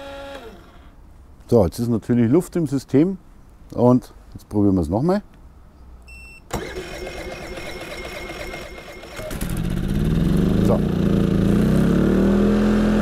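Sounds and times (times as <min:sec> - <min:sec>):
generator engine cranking and running: 0:06.5 - 0:11.6.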